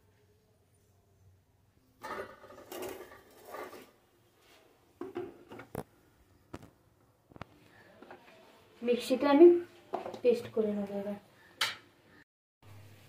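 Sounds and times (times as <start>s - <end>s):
metal jar clattering and knocking: 2.0s - 4.0s.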